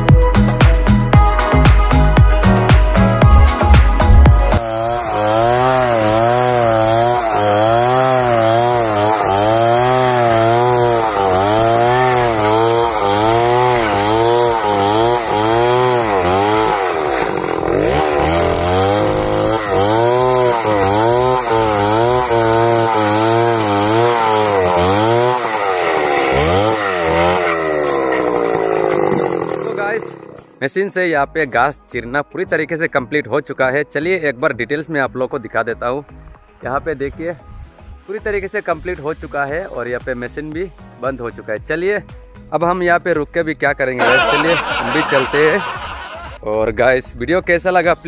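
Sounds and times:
chainsaw cutting log: 2.4 - 30.6, 44.0 - 46.4.

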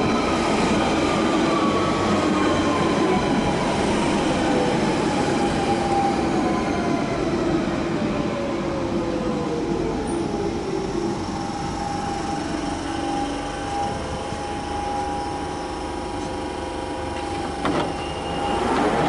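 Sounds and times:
train wheels rumbling on rails: 0.0 - 19.0
train motor whine: 11.2 - 19.0.

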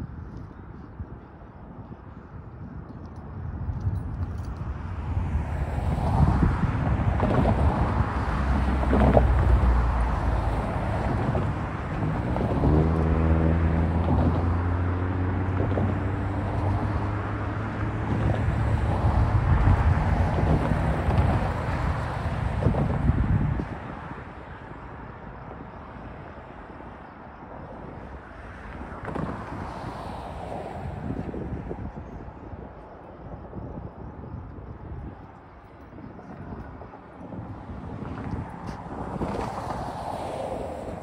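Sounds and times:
vehicles crossing railroad tracks: 0.0 - 41.0
steady vehicle engine: 4.3 - 25.3.

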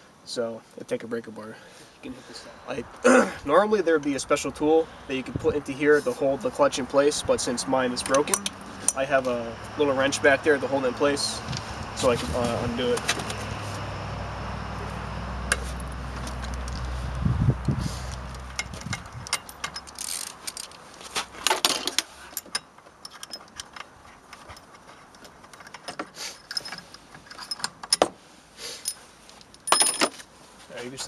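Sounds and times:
hand tools clinking and jangling: 8.0 - 9.2, 18.1 - 30.3.

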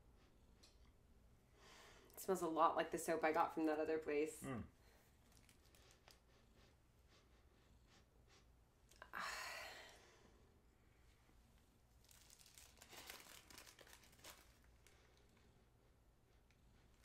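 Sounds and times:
paper wrapper crinkling: 5.2 - 6.2, 11.9 - 15.4.

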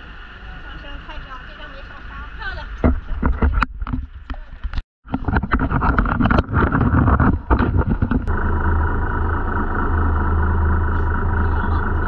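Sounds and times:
boat engine droning: 0.0 - 2.8, 6.0 - 12.0.

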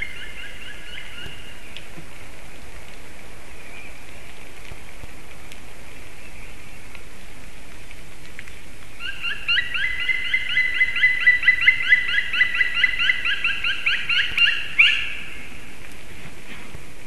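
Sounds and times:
woodpecker calling: 0.0 - 1.9, 9.0 - 15.6.

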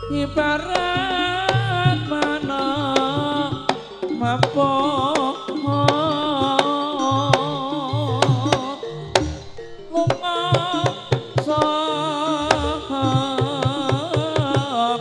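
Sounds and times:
wavering held melody: 0.0 - 15.0
hand drums: 0.6 - 15.0
sharp percussion strokes: 0.8 - 15.0.

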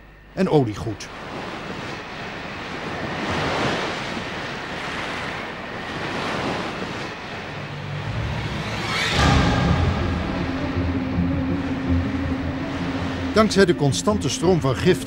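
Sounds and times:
waves breaking: 0.6 - 15.0
low music notes: 7.6 - 15.0.

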